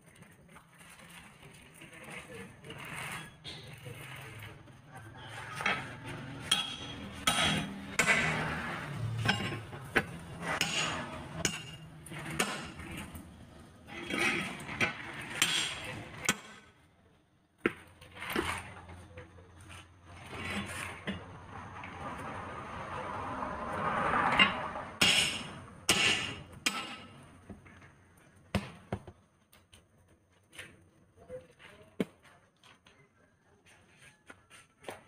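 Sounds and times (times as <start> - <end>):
tire irons clinking on metal rim: 5.6 - 16.6.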